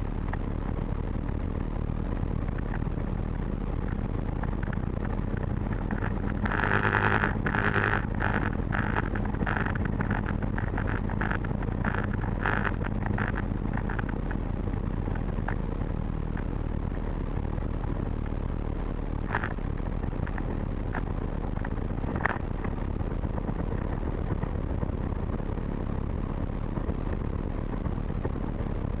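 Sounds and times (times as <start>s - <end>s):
aircraft engine idling: 0.8s - 17.3s
sharp clicks: 3.8s - 14.4s.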